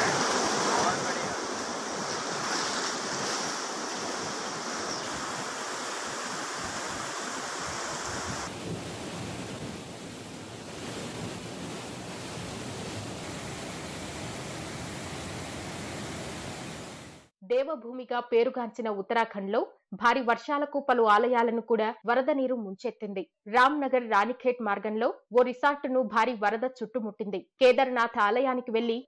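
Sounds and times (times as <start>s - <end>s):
river floodwater rushing: 0.0s - 17.2s.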